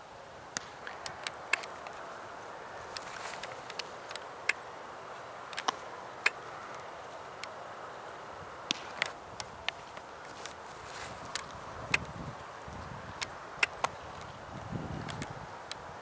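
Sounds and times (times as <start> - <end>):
steady background hiss: 0.0 - 16.0
balls striking bats and gloves: 8.6 - 9.8.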